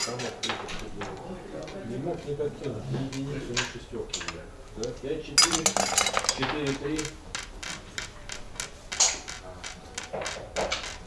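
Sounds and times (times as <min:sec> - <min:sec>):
wooden checkers and dice clacking: 0:03.0 - 0:11.0.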